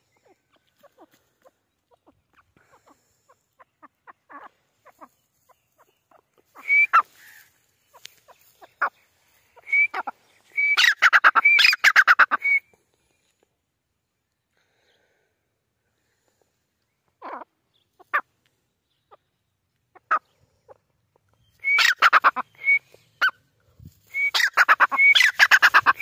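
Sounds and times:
bird calling: 0.0s - 12.8s, 18.9s - 26.0s.

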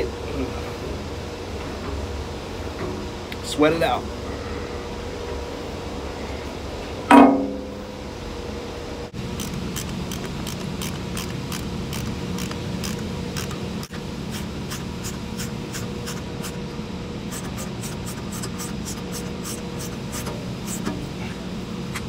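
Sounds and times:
machine room hum: 0.0s - 22.0s
ratchet wrench clicking: 9.4s - 13.9s.

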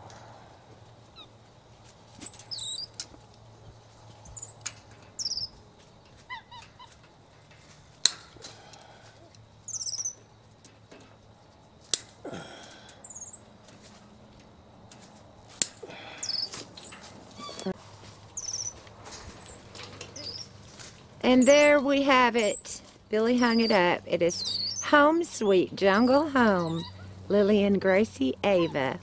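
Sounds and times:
high-pitched chirping calls: 2.1s - 3.0s, 4.2s - 5.6s, 9.6s - 10.2s, 13.0s - 13.6s, 16.2s - 20.5s, 21.3s - 27.1s.

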